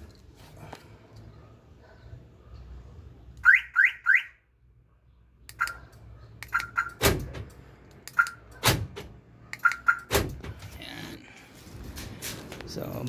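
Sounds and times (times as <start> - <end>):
car alarm chirps: 3.4 - 4.4, 6.5 - 7.0, 9.6 - 10.1
door lock actuators clunking: 9.9 - 10.7.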